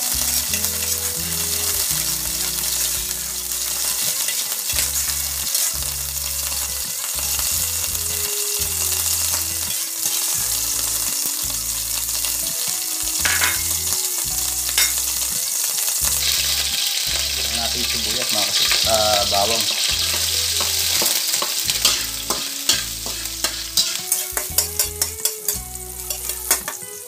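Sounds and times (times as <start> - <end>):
oil sizzling in a wok: 0.0 - 27.0
spatula scraping a pan: 0.1 - 7.5, 18.4 - 26.8.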